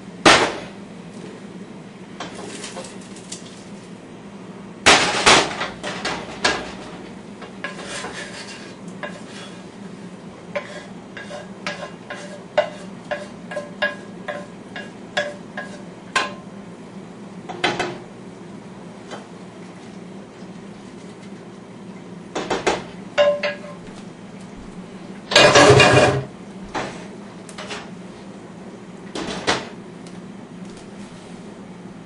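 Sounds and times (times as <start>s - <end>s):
pot and lid clanking: 22.4s - 23.8s, 25.3s - 26.3s.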